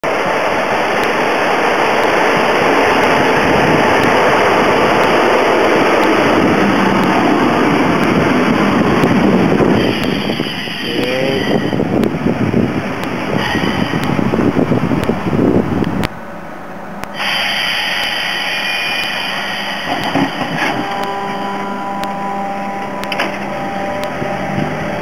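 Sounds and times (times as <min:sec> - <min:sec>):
train wheels rushing past: 0:00.1 - 0:15.6, 0:17.1 - 0:25.0
brief train squeals: 0:13.4 - 0:14.0, 0:17.2 - 0:22.0.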